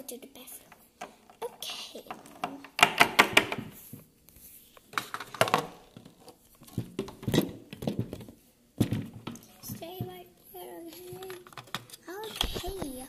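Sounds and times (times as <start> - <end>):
plastic toys clicking and rustling: 10.8 - 13.0.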